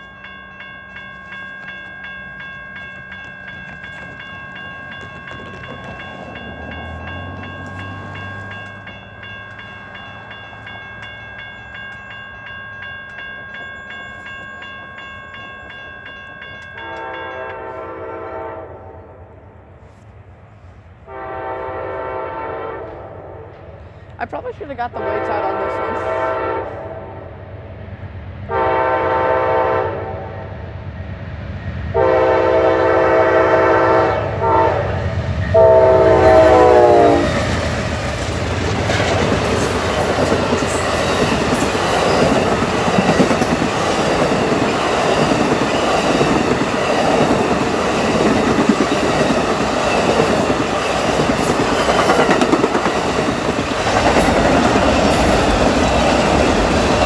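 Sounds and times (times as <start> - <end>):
train cars rumbling and clacking: 0.0 - 57.0
train horn blasts: 16.8 - 19.4, 21.0 - 23.5, 24.9 - 27.3, 28.5 - 30.4, 31.9 - 37.5.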